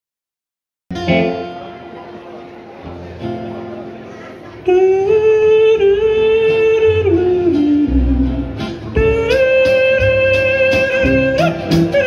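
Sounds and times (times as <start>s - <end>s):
western swing band playing: 0.9s - 2.2s, 2.8s - 12.0s
steel guitar: 0.9s - 12.0s
man yodeling: 4.6s - 12.0s.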